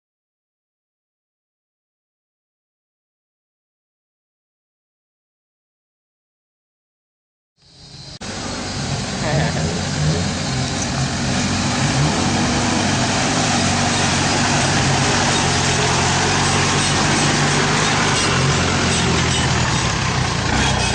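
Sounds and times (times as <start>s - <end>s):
convoy of vehicles: 7.6s - 20.9s
off-road vehicle engine running: 7.8s - 20.9s.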